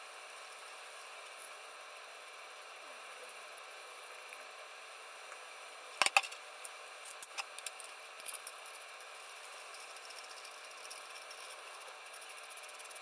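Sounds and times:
metal hardware clicking and clattering: 6.0 - 6.4.

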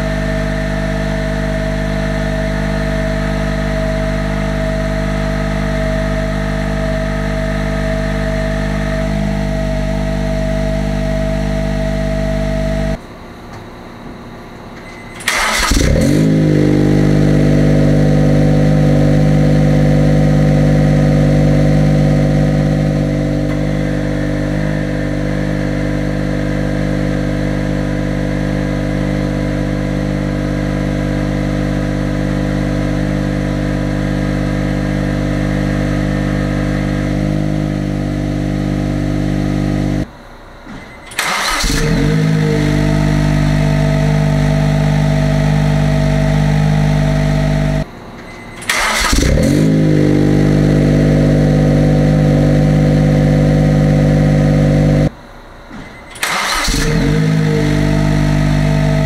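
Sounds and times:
car engine idling: 0.0 - 59.0
engine starting with rev flare: 14.9 - 21.0, 40.8 - 53.1, 55.8 - 59.0.

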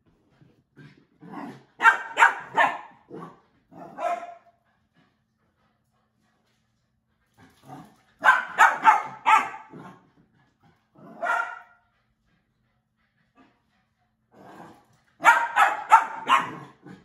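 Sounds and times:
puppy barking: 1.8 - 3.0, 4.0 - 4.5, 8.2 - 9.8, 11.2 - 11.8, 15.2 - 16.7.

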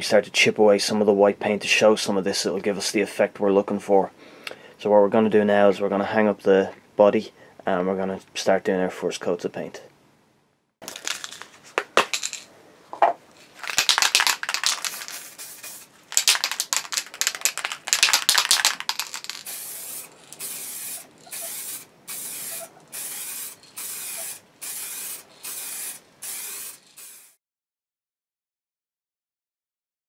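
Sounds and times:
spray can rattling: 10.8 - 12.5, 13.4 - 27.4
spray can hissing: 11.0 - 11.4, 13.6 - 27.4
spray can clicks: 13.6 - 27.3.

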